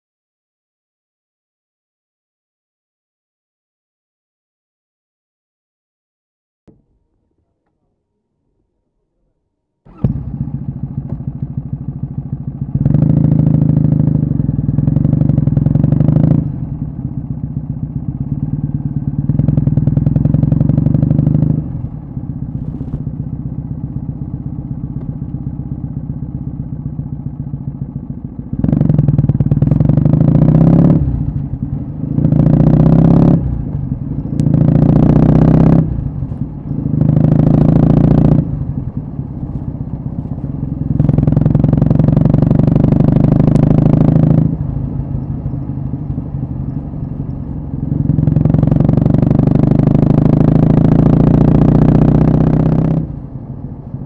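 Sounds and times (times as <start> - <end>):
motorcycle engine revving: 9.9 - 54.0.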